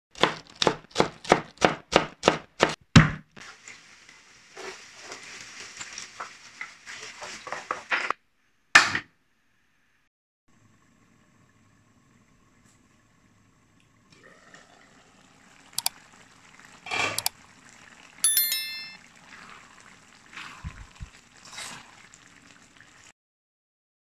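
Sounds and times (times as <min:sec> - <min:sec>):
knife chopping on wooden board: 0:00.2 - 0:03.2
onions sizzling in hot oil: 0:03.4 - 0:08.0, 0:14.7 - 0:18.2, 0:19.1 - 0:23.1.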